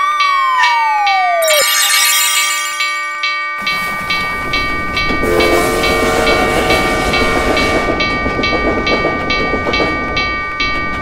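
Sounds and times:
railroad crossing bell ringing: 0.0s - 11.0s
passing train rumble and clatter: 3.6s - 11.0s
steam locomotive whistle: 5.2s - 8.0s.

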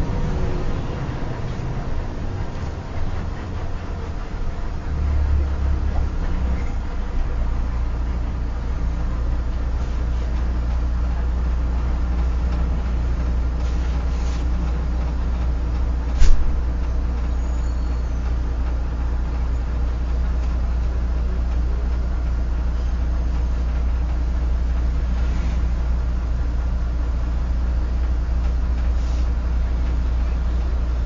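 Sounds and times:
bus engine drone: 0.0s - 31.0s
road noise: 0.0s - 31.0s.

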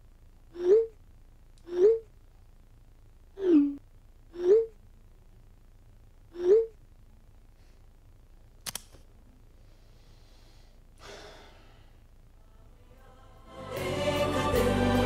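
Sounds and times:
quick clicks: 8.6s - 9.1s
man sighing: 11.0s - 11.9s
music with choral singing: 12.4s - 15.0s.

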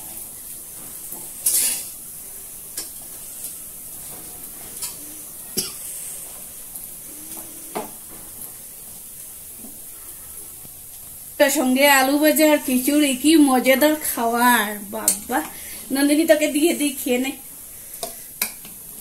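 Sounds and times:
steady high hiss: 0.0s - 19.0s.

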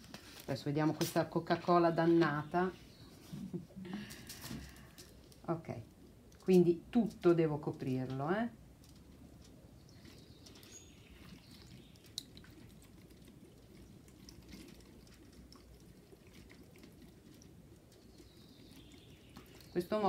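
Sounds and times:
liquid trickling and dripping: 8.8s - 20.0s.

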